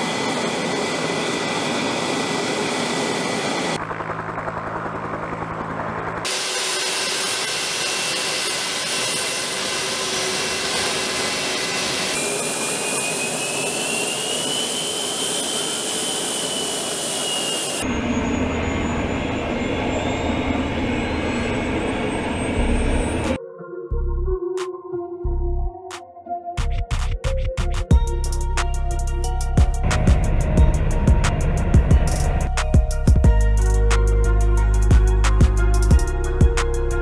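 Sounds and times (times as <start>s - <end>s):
jet engines roaring: 0.0s - 3.9s, 4.8s - 23.4s, 29.8s - 33.2s
engine whine: 0.0s - 23.4s, 27.9s - 37.0s.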